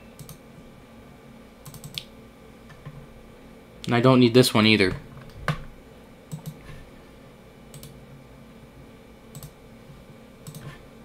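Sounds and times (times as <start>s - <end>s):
computer mouse clicking: 0.2s - 0.4s, 1.6s - 2.1s, 6.3s - 6.6s, 7.7s - 8.0s, 9.3s - 9.6s, 10.4s - 10.8s.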